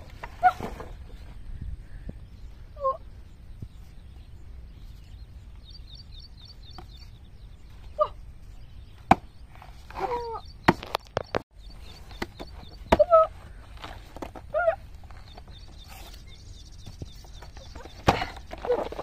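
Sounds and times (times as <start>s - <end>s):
knife chopping banana trunk: 9.1s - 9.3s.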